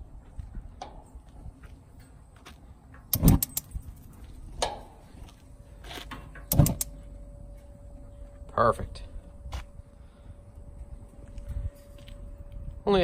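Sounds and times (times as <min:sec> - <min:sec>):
grill igniter clicking: 0:03.0 - 0:03.8, 0:06.1 - 0:07.0.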